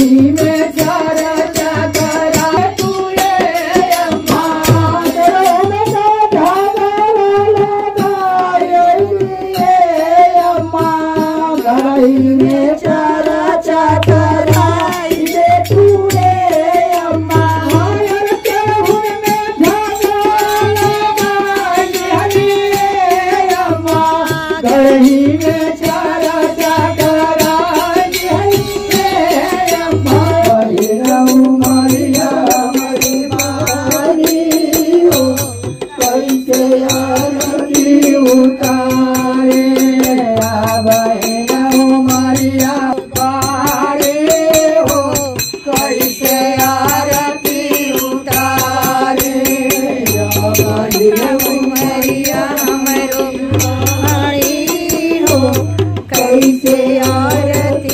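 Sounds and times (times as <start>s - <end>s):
fast high percussion: 0.0s - 57.9s
men singing devotional song: 0.0s - 57.9s.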